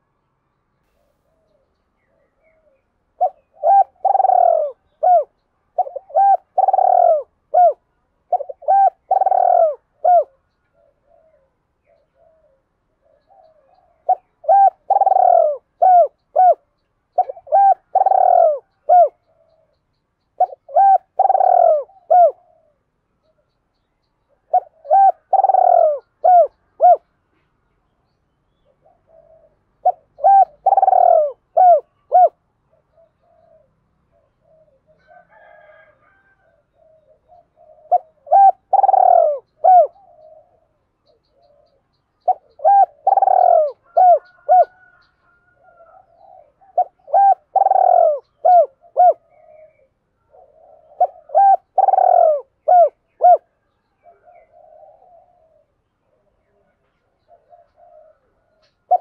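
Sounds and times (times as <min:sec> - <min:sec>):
dove cooing: 0:01.1 - 0:19.8, 0:20.4 - 0:23.5, 0:24.3 - 0:27.4, 0:28.6 - 0:59.0.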